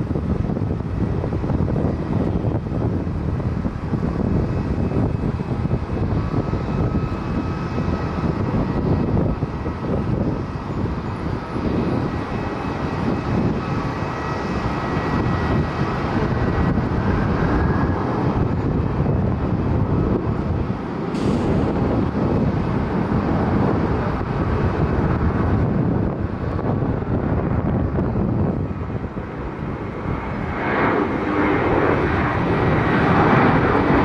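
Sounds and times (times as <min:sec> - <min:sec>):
jet engines roaring with fan whine: 0:00.0 - 0:34.0.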